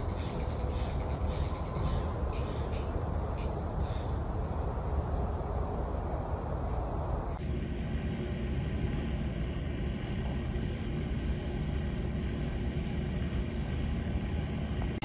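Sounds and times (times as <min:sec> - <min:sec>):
insects chirring: 0:00.0 - 0:07.4
low steady rumble: 0:00.0 - 0:15.0.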